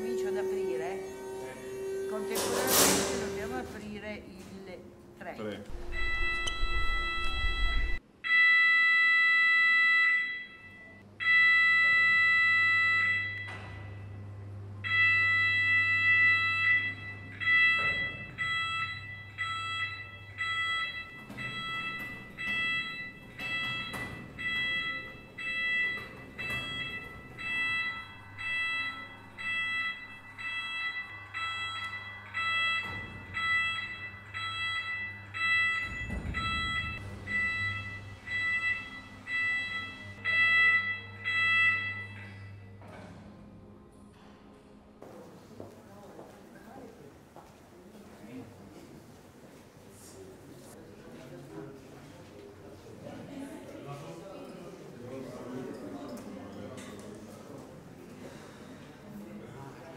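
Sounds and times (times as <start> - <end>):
low hum: 4.8 - 8.0
electronic warning beeps: 5.7 - 13.8, 14.9 - 42.7.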